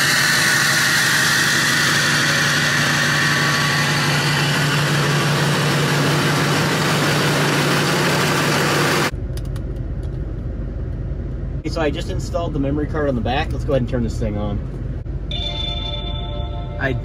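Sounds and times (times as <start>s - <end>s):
diesel engine idling: 1.3s - 9.4s.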